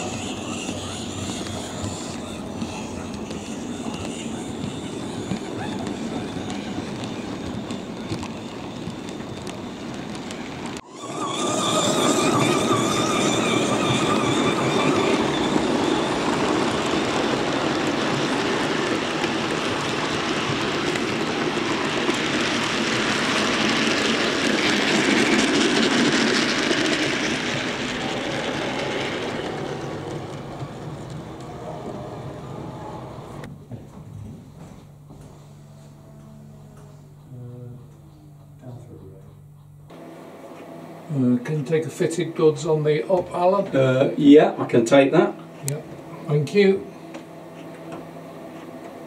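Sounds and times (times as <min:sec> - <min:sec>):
model train rumbling on rails: 0:00.0 - 0:33.5.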